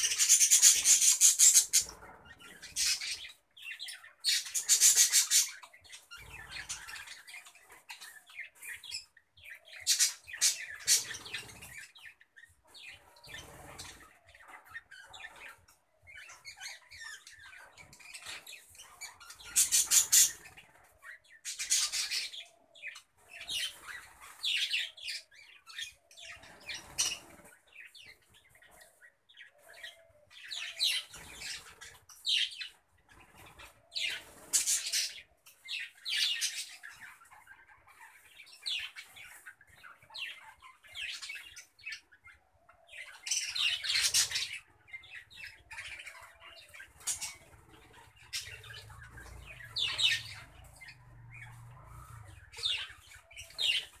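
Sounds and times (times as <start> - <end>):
budgerigars chirping: 0.0 - 54.0.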